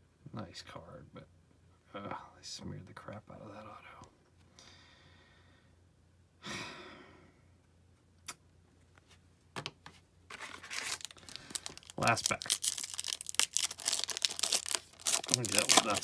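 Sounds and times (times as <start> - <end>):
man sighing: 6.4 - 7.4
foil card pack rustling: 10.3 - 16.0.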